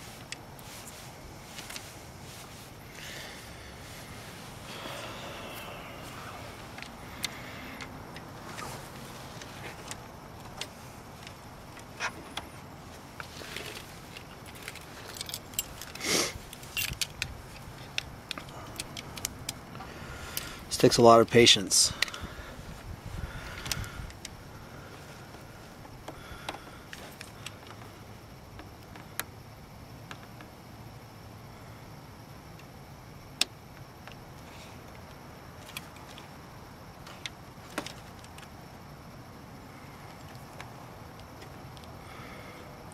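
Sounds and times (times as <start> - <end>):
steady low hiss: 0.0 - 42.9
wires and connector clicking: 14.2 - 19.6.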